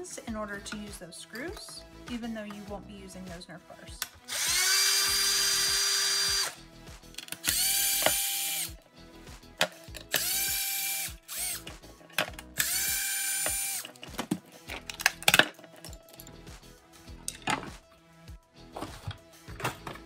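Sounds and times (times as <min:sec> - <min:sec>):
power screwdriver whining: 0:04.3 - 0:06.6, 0:07.2 - 0:08.8, 0:10.1 - 0:11.8, 0:12.5 - 0:14.0
handling clicks and knocks: 0:13.8 - 0:16.4, 0:17.2 - 0:17.8.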